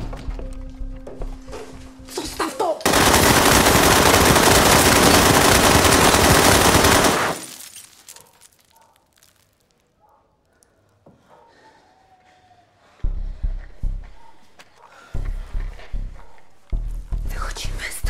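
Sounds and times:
assault rifle automatic fire: 2.8 - 7.6.

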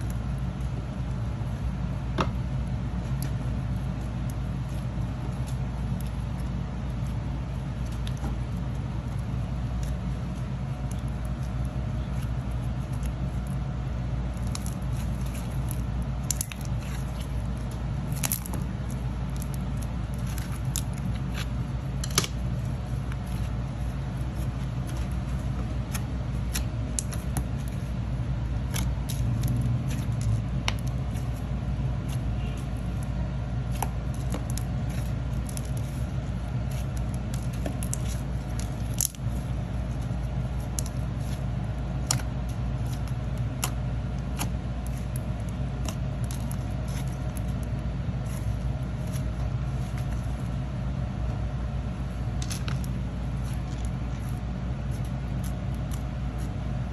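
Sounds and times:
steady low hum: 0.0 - 56.9
slime clicking and popping: 42.0 - 45.2.

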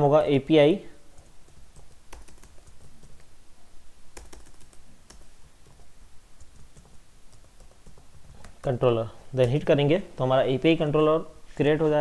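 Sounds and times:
computer keyboard typing: 1.2 - 3.3, 4.1 - 5.8, 6.4 - 8.8.

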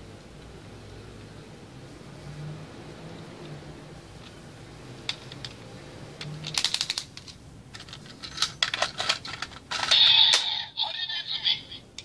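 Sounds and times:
hard plastic toy clicking: 6.2 - 10.5
plastic toy rattling: 6.2 - 10.5.

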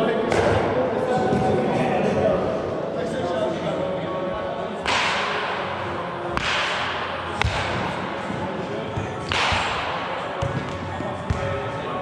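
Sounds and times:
baseball bat cracks: 4.8 - 5.7, 6.3 - 7.9, 9.2 - 10.0.

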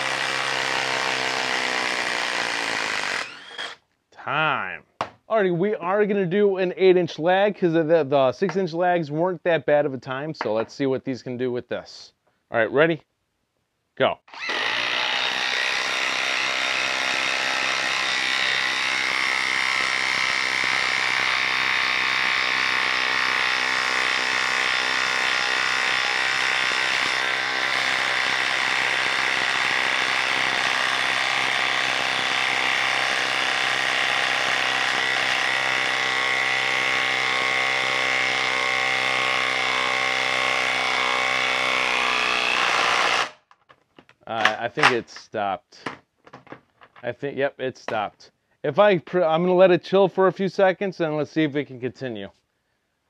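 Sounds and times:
impact driver hammering: 0.0 - 3.8, 14.3 - 43.4.

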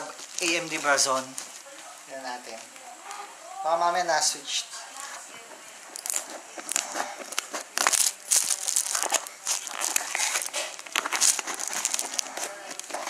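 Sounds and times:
plastic wrap crinkling: 0.0 - 1.8, 5.0 - 13.0.

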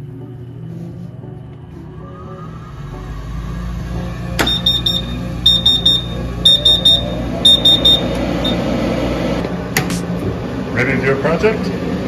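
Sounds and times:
low hum: 0.0 - 10.7
fan motor whining: 0.0 - 12.0
electronic alarm beeping: 4.4 - 8.7.

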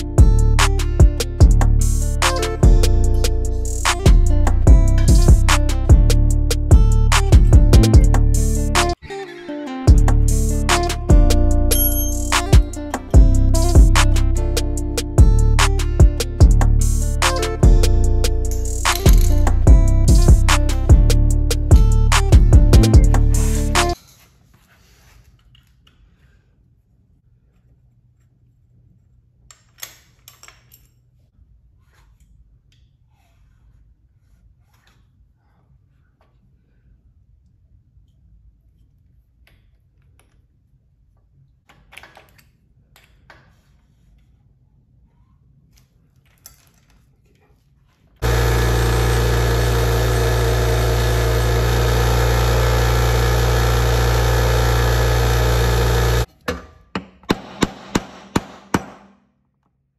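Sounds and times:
hand tool clinking on metal: 11.7 - 12.6
bench grinder grinding metal: 48.2 - 56.3.

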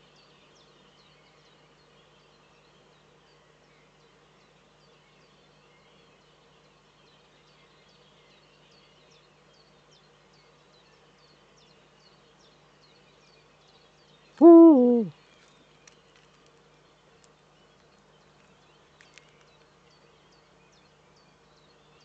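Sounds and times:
owl deep hoot: 14.4 - 15.1.

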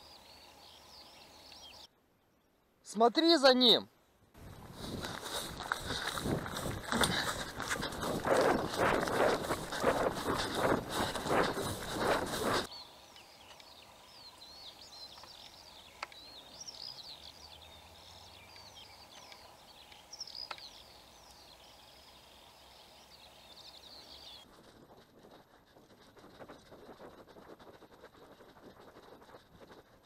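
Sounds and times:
songbirds chirping and trilling: 0.0 - 2.7, 4.9 - 24.5.

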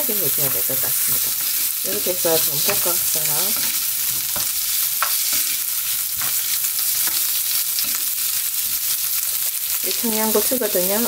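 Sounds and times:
fish sizzling in oil: 0.0 - 11.0
wooden spoon scraping a pan: 0.3 - 9.0.

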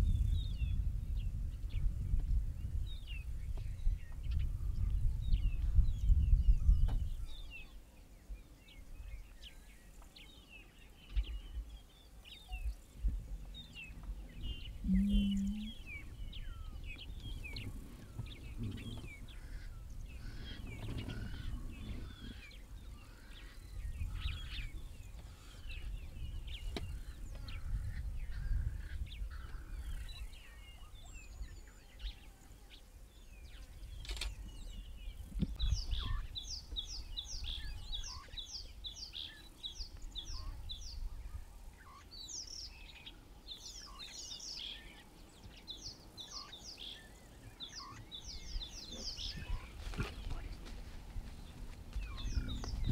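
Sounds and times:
gusty low rumble: 0.0 - 7.6, 12.6 - 30.3, 48.2 - 52.9
birds chirping: 0.0 - 52.9.

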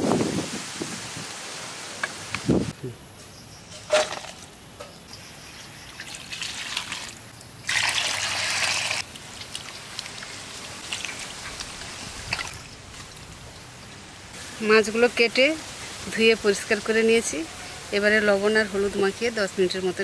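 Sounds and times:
water trickling and splashing: 5.5 - 20.0
water pouring: 5.8 - 13.3.

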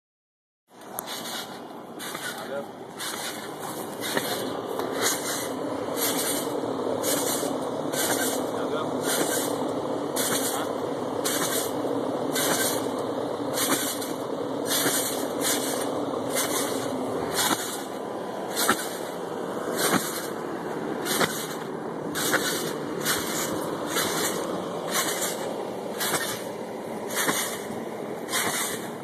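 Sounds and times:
trampoline spring and mat hissing: 1.0 - 29.0.

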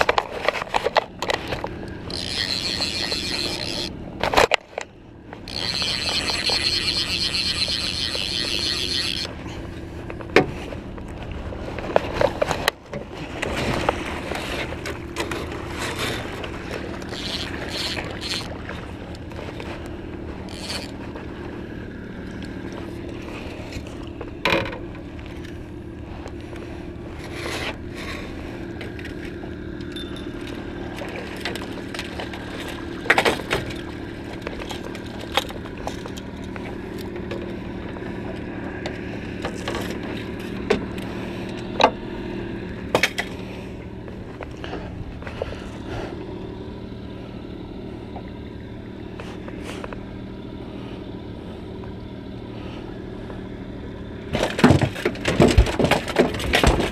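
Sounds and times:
knocks and clatters on boat: 0.0 - 46.8, 53.2 - 56.9
boat motor humming: 0.0 - 56.9
fishing reel ratcheting clicks: 1.2 - 4.6, 5.4 - 9.3, 17.0 - 18.8, 20.4 - 21.0.

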